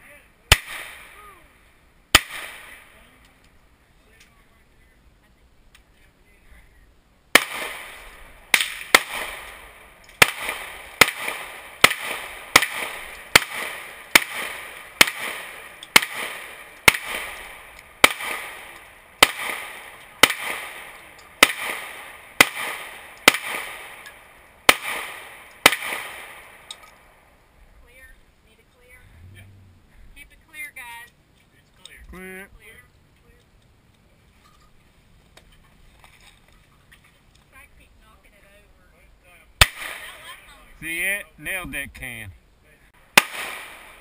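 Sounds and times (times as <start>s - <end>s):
gunshots with echo: 0.5s - 1.2s, 2.1s - 3.0s, 7.4s - 26.8s, 39.6s - 40.0s, 43.1s - 44.0s.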